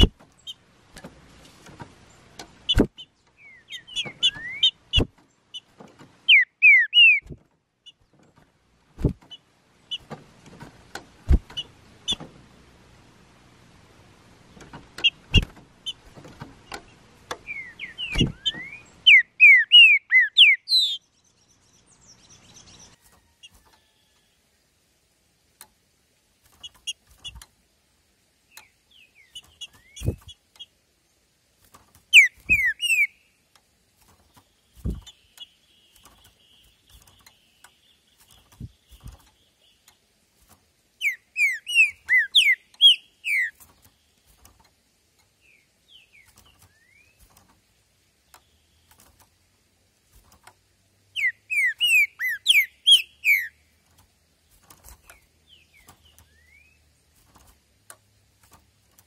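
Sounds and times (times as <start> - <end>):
bird singing whistled phrases: 3.4 - 4.8, 6.3 - 7.4, 17.4 - 21.0, 32.2 - 33.2, 41.0 - 43.6, 51.2 - 53.6, 56.3 - 56.8
soft bird chips: 31.6 - 47.7, 50.0 - 59.0.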